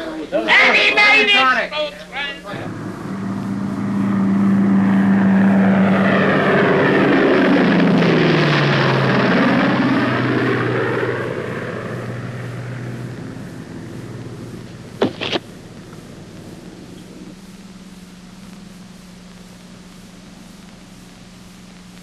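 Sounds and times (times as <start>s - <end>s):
propeller airplane flying overhead: 0.8s - 17.4s.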